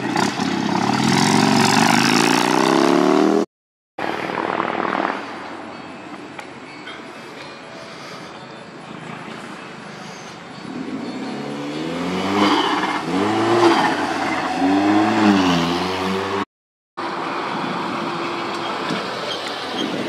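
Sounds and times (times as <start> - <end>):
car engine revving: 11.3 - 16.4.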